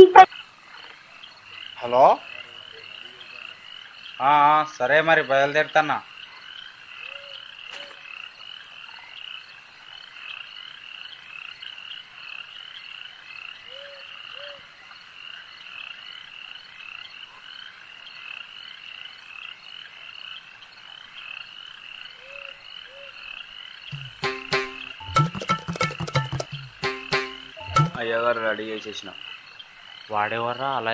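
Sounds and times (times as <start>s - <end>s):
frogs croaking: 0.0s - 25.4s, 26.1s - 30.9s
music with sharp hits: 24.0s - 28.2s
two-note call: 24.0s - 28.2s.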